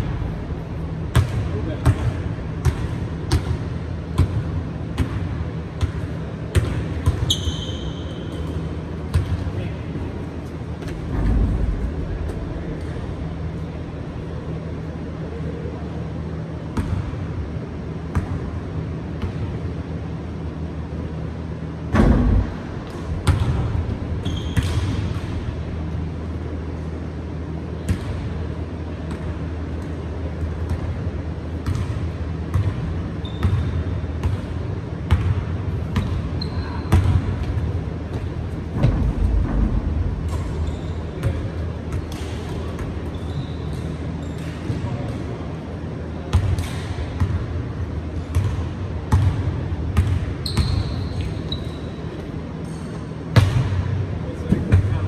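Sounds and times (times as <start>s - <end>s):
steady low hum: 0.0s - 55.0s
shoe squeaks: 7.2s - 8.6s, 24.2s - 24.8s, 33.2s - 33.9s, 36.0s - 37.0s, 40.4s - 41.3s, 43.0s - 44.8s, 50.4s - 53.1s.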